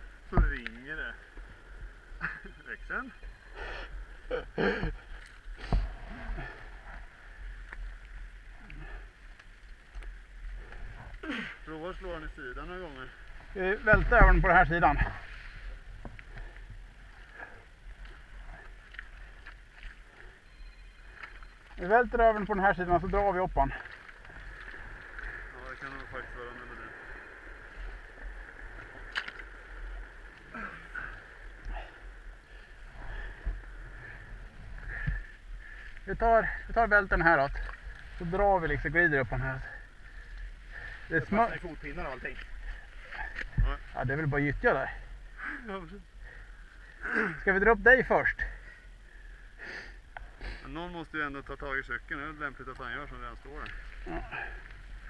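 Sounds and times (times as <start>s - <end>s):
muddy water sloshing: 3.0s - 47.6s, 53.2s - 55.0s.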